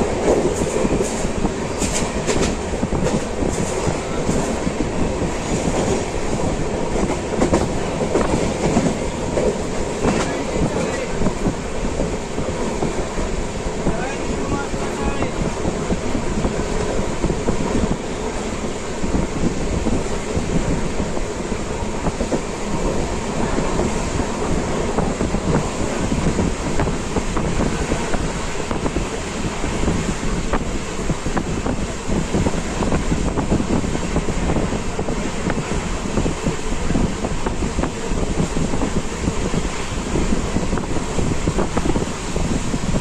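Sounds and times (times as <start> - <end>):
train coach rumbling: 0.0 - 43.0.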